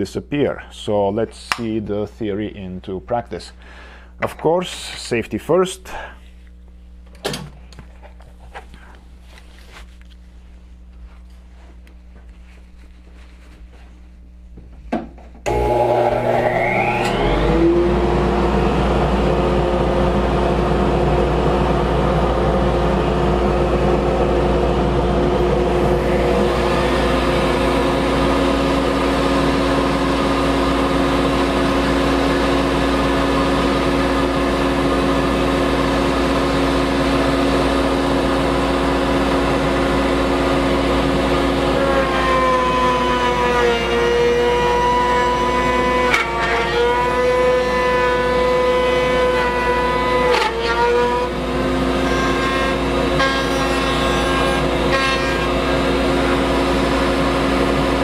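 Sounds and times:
router bit whine cutting wood: 15.4s - 58.0s
wood router running: 15.4s - 58.0s.

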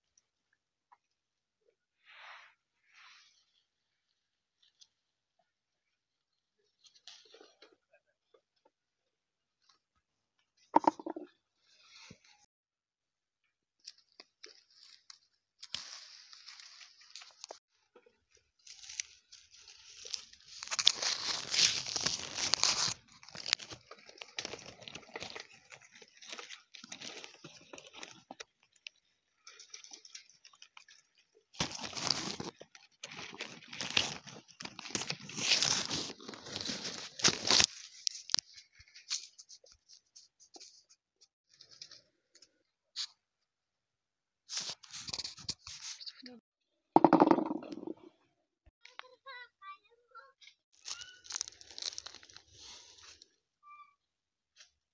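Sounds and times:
leaves and twigs rustling: 13.8s - 28.8s, 29.4s - 40.8s, 50.8s - 53.4s.

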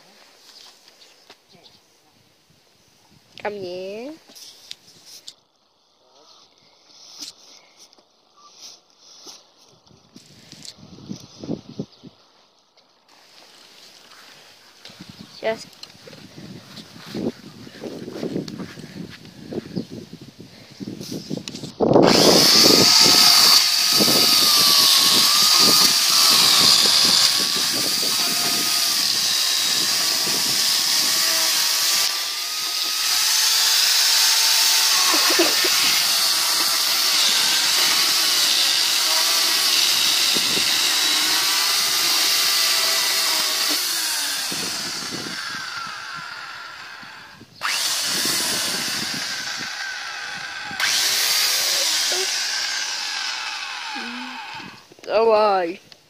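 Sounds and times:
electric chainsaw cutting log: 22.0s - 54.9s.

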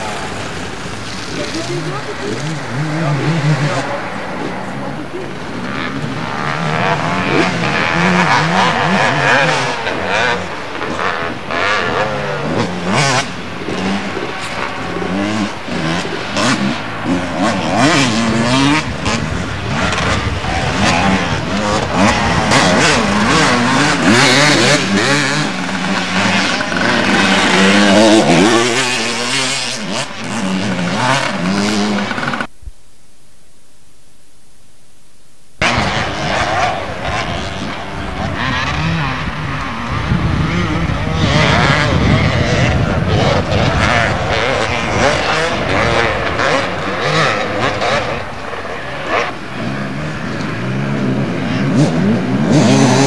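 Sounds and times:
motocross motorcycles revving: 0.0s - 32.5s, 35.6s - 53.0s.

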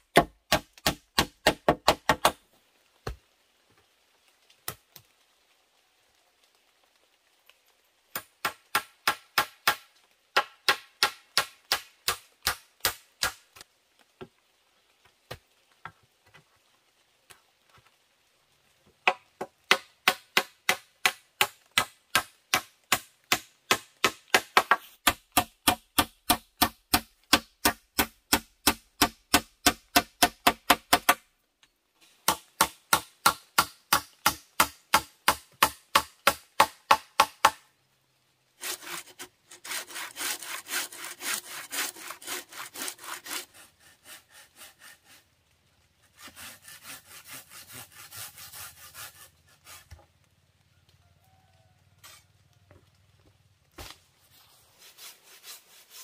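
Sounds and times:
chopping strikes on wood: 0.1s - 2.4s, 8.1s - 13.4s, 19.0s - 31.2s.

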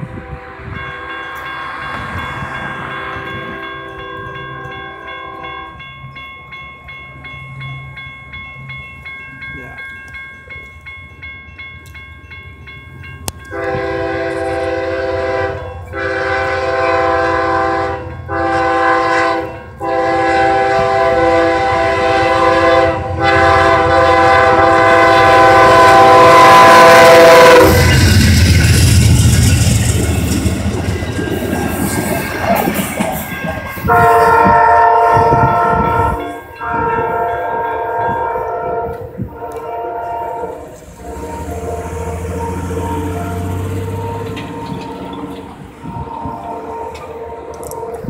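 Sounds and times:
train horn blasts: 0.0s - 1.5s, 2.8s - 5.8s, 13.4s - 29.7s, 33.7s - 48.0s
railroad crossing bells ringing: 0.0s - 48.0s.

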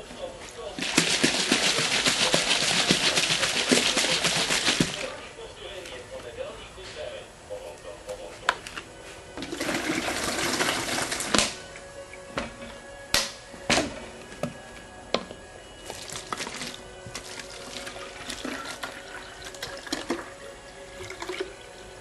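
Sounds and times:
music: 0.0s - 22.0s
water gushing: 0.6s - 5.2s, 9.4s - 11.6s, 15.9s - 21.7s.

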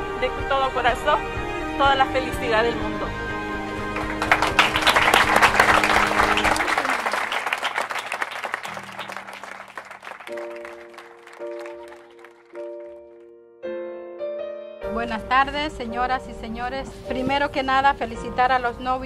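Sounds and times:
background music of held chords: 0.0s - 6.4s
people clapping: 3.9s - 13.2s.

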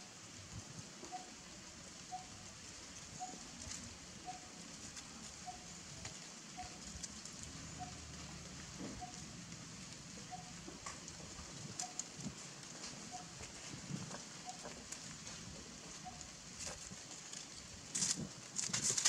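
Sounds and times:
rustles of dry leaves: 0.0s - 19.0s
steady hiss: 0.0s - 19.0s.

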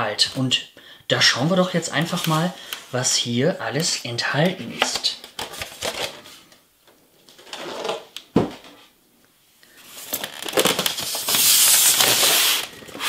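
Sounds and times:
packaging rustling and scraping: 4.6s - 6.6s, 7.3s - 8.2s, 9.8s - 13.0s.

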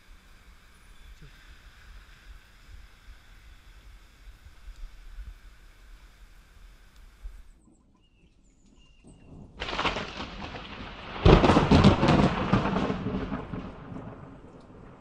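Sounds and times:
thunder rumble: 9.2s - 15.0s
thunder clap: 9.3s - 15.0s
thunder crack: 9.4s - 15.0s.

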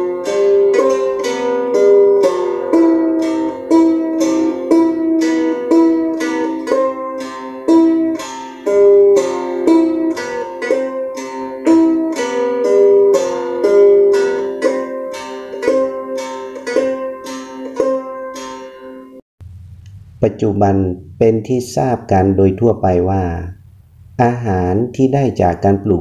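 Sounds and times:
plucked string instrument melody: 0.0s - 19.2s.

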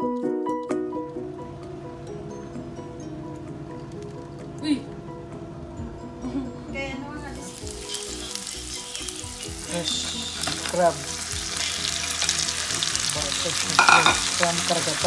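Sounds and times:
oil sizzling in a wok: 7.3s - 15.0s.

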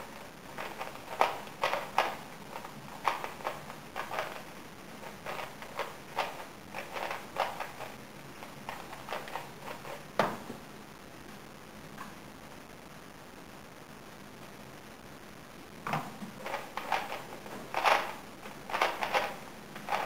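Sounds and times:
puzzle cube plastic clicks: 0.5s - 8.0s, 8.6s - 10.0s, 16.4s - 20.0s.

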